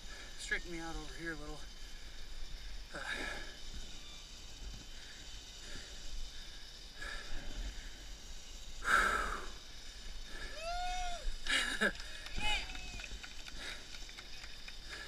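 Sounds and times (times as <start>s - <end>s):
heavy breathing: 4.9s - 10.7s, 13.3s - 15.0s.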